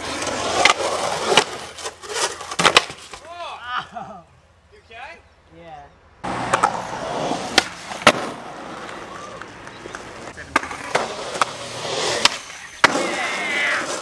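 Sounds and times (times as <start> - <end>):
skateboard clacking on ground: 0.0 - 3.3, 6.4 - 14.0
skateboard wheels rolling on pavement: 0.0 - 3.4, 6.2 - 14.0.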